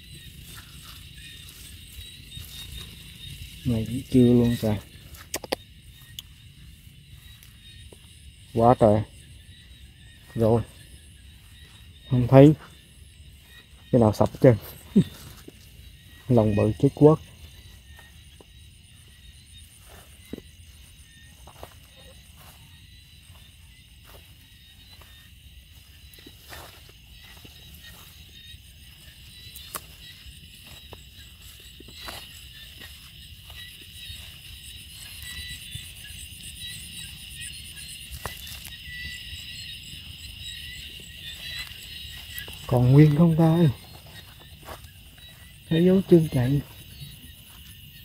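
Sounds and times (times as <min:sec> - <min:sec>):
footsteps rustling through grass: 0:00.0 - 0:48.0
frogs trilling: 0:00.0 - 0:48.0
insects chirping: 0:00.0 - 0:48.0.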